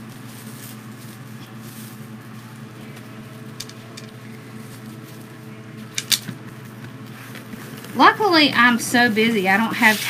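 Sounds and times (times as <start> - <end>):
foil mesh rustling and crinkling: 0.0 - 5.4
steady low hum: 0.0 - 10.0.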